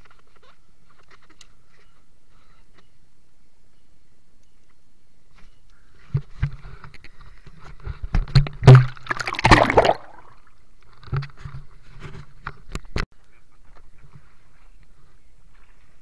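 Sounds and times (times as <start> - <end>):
water splashing and gurgling: 8.6 - 10.5.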